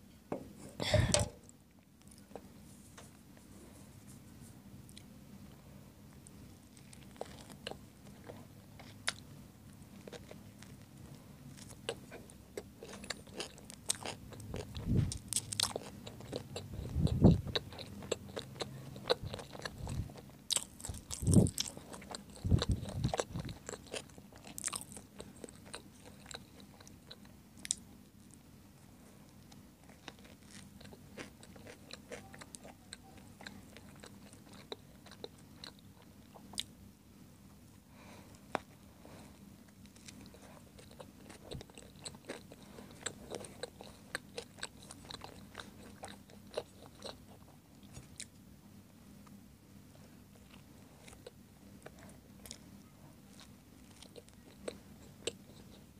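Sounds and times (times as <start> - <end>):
biting and chewing food: 6.1 - 9.3, 9.9 - 28.4, 29.3 - 36.8, 39.6 - 48.4, 50.3 - 55.9.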